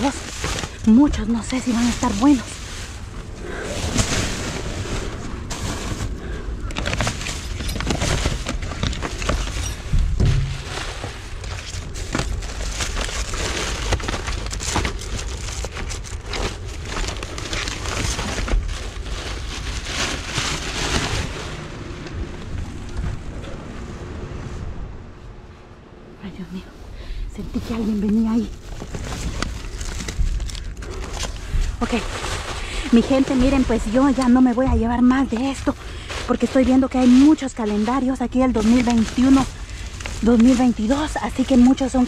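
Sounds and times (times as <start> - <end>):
paper and plastic bags rustling: 0.0 - 23.4, 26.3 - 42.0
dull thump: 9.9 - 11.1.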